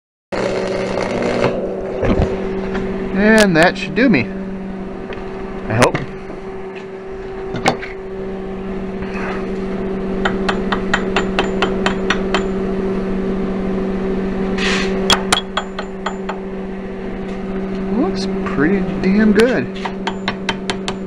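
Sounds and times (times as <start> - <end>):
arc welder humming: 0.3 - 21.0
short hiss: 14.6 - 15.0
sharp ringing metallic clicks: 19.4 - 21.0.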